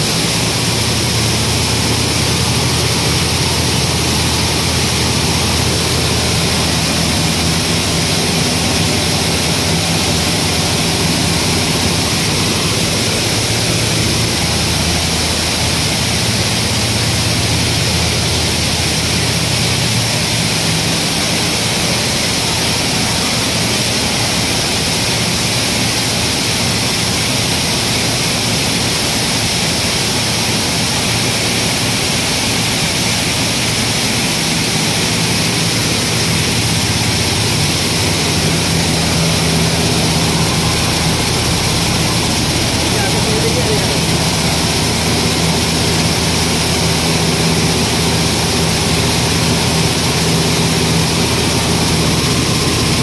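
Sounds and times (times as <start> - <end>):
loud machine noise: 0.0 - 53.0
low machine hum: 0.0 - 53.0.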